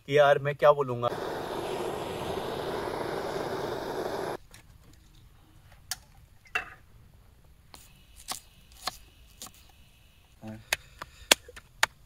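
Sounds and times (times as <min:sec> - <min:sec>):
car engine running: 0:01.1 - 0:04.4.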